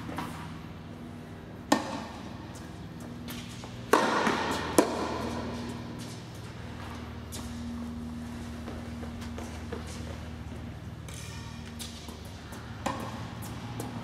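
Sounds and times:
low steady hum: 0.0s - 14.0s
tennis racket strikes: 1.6s - 6.2s, 11.0s - 14.0s.

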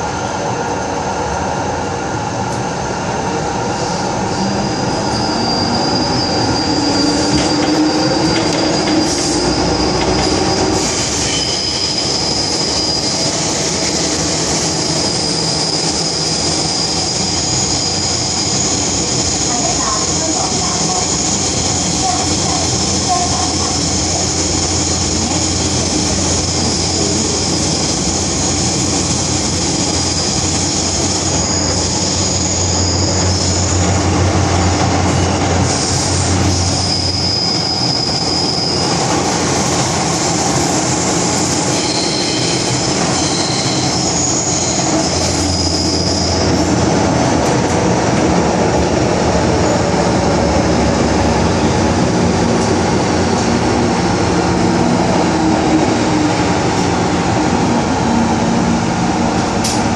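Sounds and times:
train wheels rumbling on rail: 0.0s - 59.9s
high-pitched wheel squeals: 4.3s - 13.4s, 41.7s - 46.5s.

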